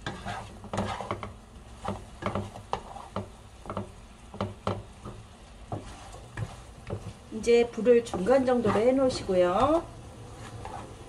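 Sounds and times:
light sizzle: 0.0 - 11.0
spatula scraping frying pan: 0.0 - 11.0.

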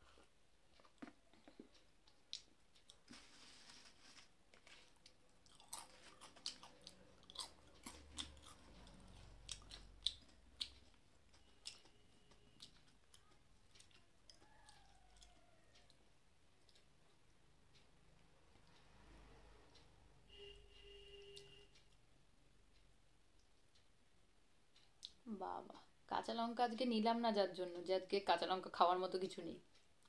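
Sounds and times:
chewing crunchy chips: 4.5 - 15.9.

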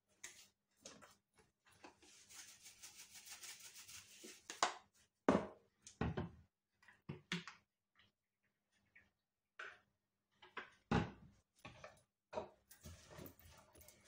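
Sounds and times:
salt rattling from a shaker: 2.0 - 4.6.

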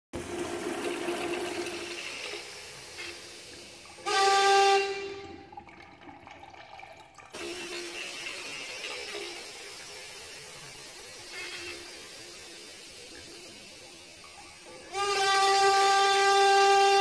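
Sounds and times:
urinal flush water rushing: 0.1 - 17.0
loud horn-like honk: 4.0 - 5.5, 11.3 - 12.0, 14.8 - 17.0.

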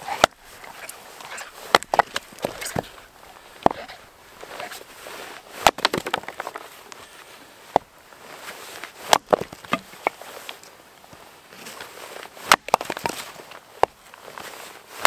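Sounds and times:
hatchet chopping wood: 0.1 - 4.9, 5.6 - 6.6, 9.1 - 10.2, 12.4 - 13.2
wood knocking: 5.6 - 6.6.

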